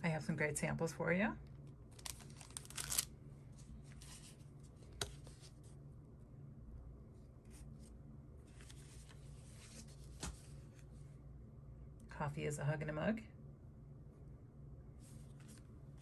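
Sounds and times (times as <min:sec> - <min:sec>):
paper rustling and sliding: 0:02.0 - 0:05.8, 0:07.4 - 0:11.0, 0:15.0 - 0:16.0.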